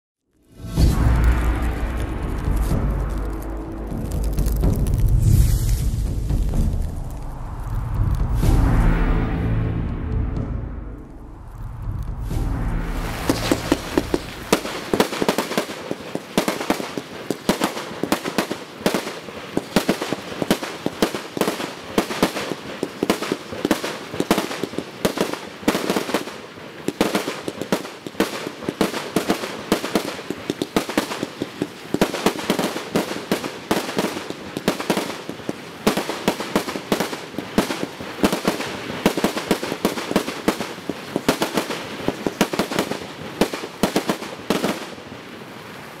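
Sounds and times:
fireworks cake firing: 0:13.0 - 0:45.0.

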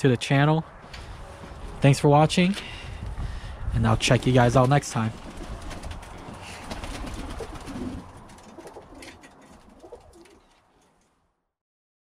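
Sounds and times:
pigeons cooing: 0:05.1 - 0:10.6.

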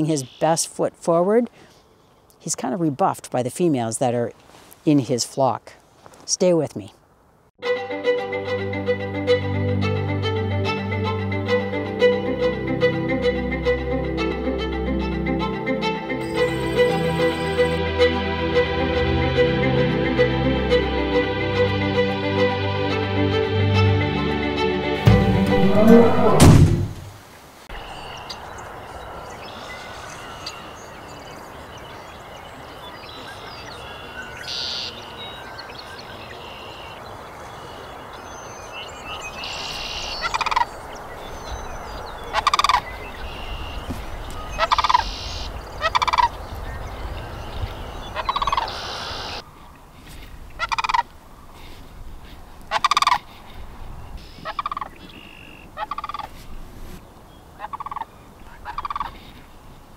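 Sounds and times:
birdsong chorus: 0:00.0 - 0:00.8, 0:27.7 - 0:56.3
cranes rattling calls: 0:39.5 - 0:40.8, 0:42.3 - 0:46.4, 0:48.1 - 0:49.4, 0:50.5 - 0:51.1, 0:52.7 - 0:53.5, 0:54.2 - 0:56.4, 0:57.6 - 0:59.3.

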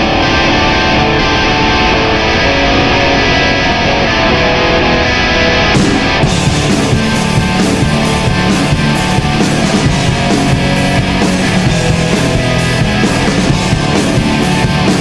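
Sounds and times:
rock music with distorted guitars: 0:00.0 - 0:15.0.

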